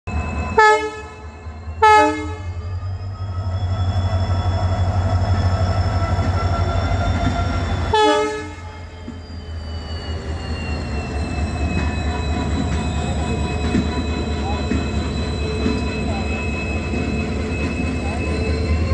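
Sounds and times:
locomotive engine hum: 0:00.1 - 0:18.9
locomotive horn blasts: 0:00.6 - 0:01.2, 0:01.8 - 0:02.7, 0:07.9 - 0:08.8.

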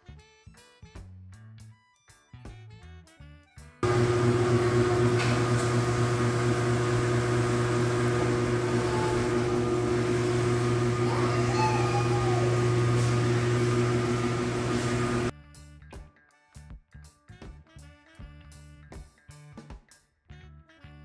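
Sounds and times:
jazz music: 0:03.1 - 0:16.1, 0:17.3 - 0:19.3, 0:20.3 - 0:21.0
machine hum: 0:03.8 - 0:15.3.

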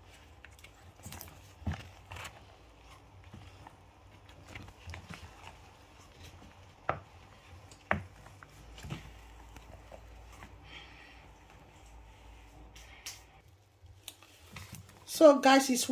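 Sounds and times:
spoon stirring sticky dough: 0:00.0 - 0:12.4.

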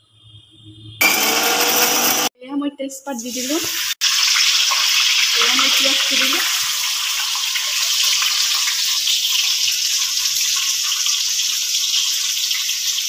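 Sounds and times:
onions sizzling in oil: 0:03.2 - 0:13.0.

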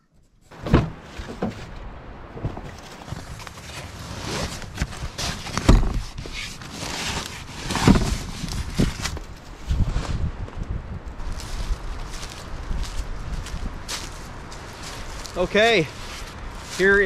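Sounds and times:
heavy thumps: 0:00.5 - 0:03.4
fabric rustling: 0:00.5 - 0:10.2.

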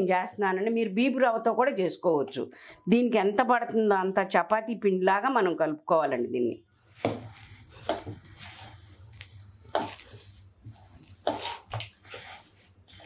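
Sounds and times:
hands squishing dough: 0:06.9 - 0:13.0.

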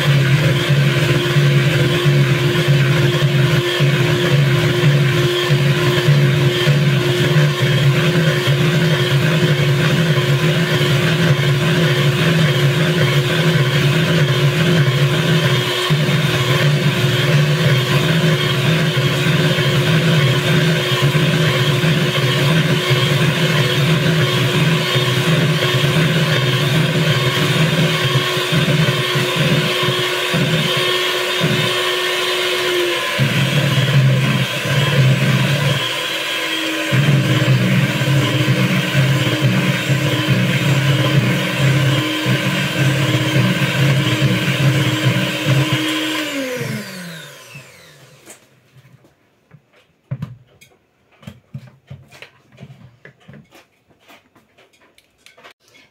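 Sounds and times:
electric hand mixer whine: 0:00.0 - 0:48.4.

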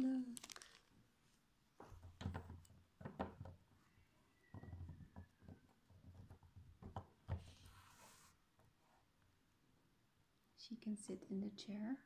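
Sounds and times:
doll handling knocks and clicks: 0:01.8 - 0:03.7, 0:04.5 - 0:07.6.

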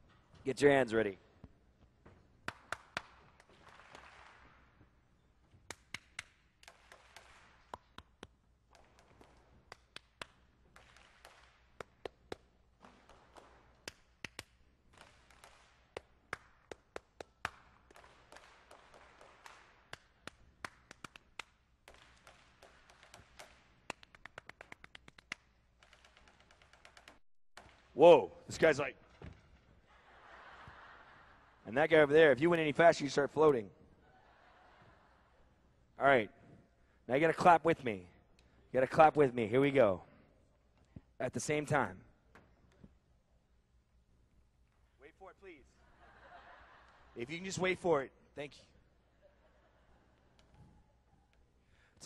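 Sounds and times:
crowd clapping: 0:02.4 - 0:04.8, 0:05.7 - 0:28.0
person clapping rhythmic patterns: 0:02.4 - 0:04.8, 0:05.6 - 0:28.0.

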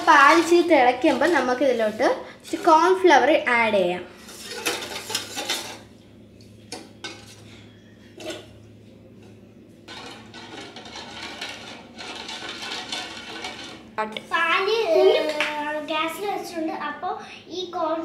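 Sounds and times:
ladle scraping a saucepan: 0:00.0 - 0:03.2, 0:04.1 - 0:05.9, 0:06.7 - 0:08.6, 0:09.9 - 0:13.8.

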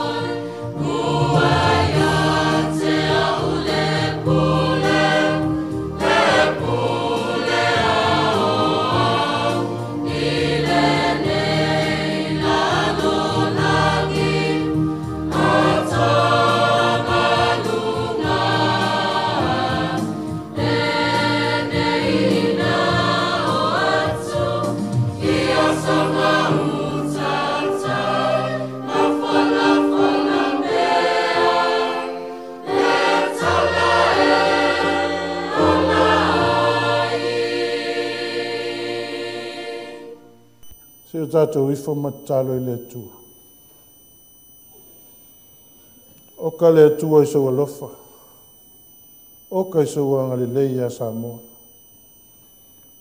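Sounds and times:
choir singing a hymn: 0:00.0 - 0:40.6.

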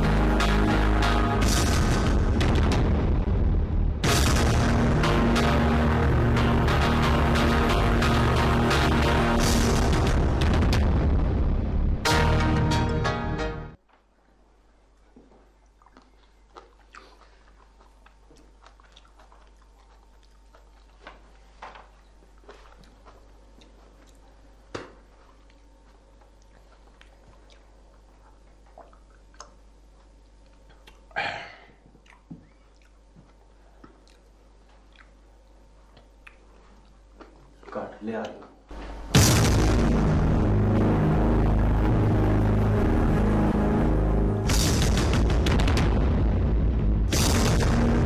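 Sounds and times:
man chewing snack crunches: 0:14.9 - 0:31.2, 0:31.8 - 0:37.9.

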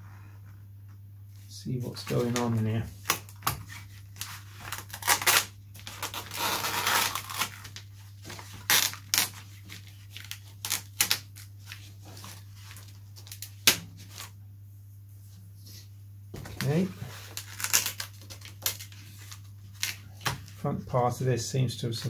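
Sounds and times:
low steady hum: 0:00.0 - 0:22.0
covering peeling and tearing: 0:02.1 - 0:14.3, 0:16.6 - 0:20.6.

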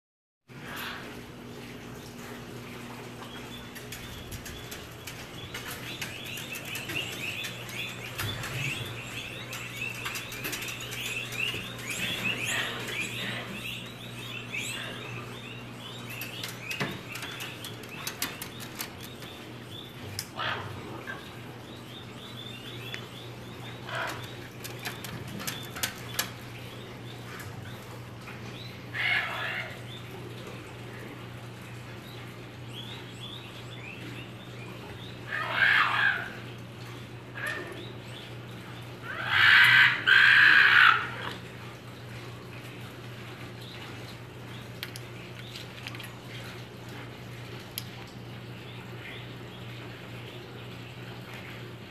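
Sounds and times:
low steady hum: 0:00.5 - 0:51.9
fox cries: 0:35.3 - 0:36.4, 0:39.0 - 0:41.4
foxes yipping: 0:35.3 - 0:36.4, 0:39.1 - 0:41.4.

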